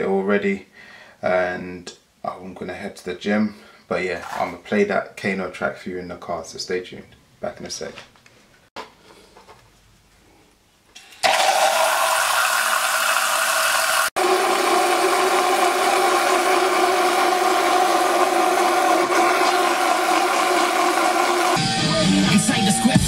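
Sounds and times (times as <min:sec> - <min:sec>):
mixer bottle motor whirring: 0:11.2 - 0:21.6.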